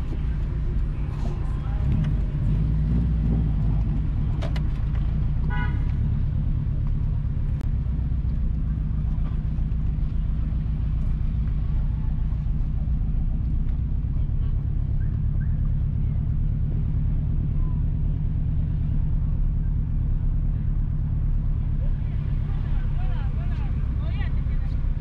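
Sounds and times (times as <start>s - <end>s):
car driving rumble: 0.0s - 25.0s
car horn toot: 5.4s - 6.0s.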